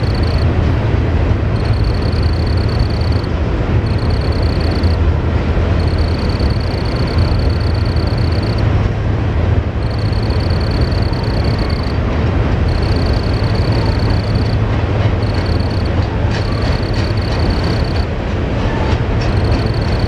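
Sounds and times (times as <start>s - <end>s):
cricket trilling: 0.0s - 0.6s, 1.5s - 5.0s, 5.8s - 8.8s, 9.8s - 12.0s, 12.6s - 18.1s, 19.2s - 20.0s
freight train rumbling on bridge: 0.0s - 20.0s.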